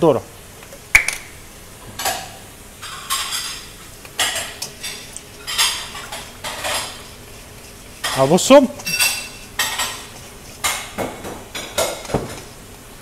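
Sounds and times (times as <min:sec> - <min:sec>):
whisk scraping metal bowl: 0:04.2 - 0:12.6.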